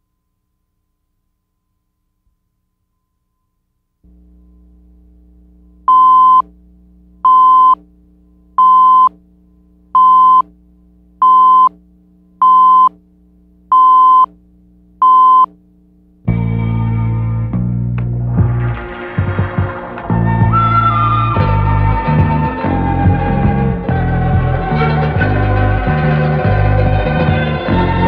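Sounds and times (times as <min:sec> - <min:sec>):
faint low hum: 0:00.0 - 0:28.0
short high-pitched beeps: 0:05.9 - 0:06.4, 0:07.3 - 0:07.8, 0:08.6 - 0:09.1, 0:10.0 - 0:10.4, 0:11.2 - 0:11.7, 0:12.4 - 0:12.9, 0:13.7 - 0:14.3, 0:15.0 - 0:15.5
music: 0:16.3 - 0:28.0.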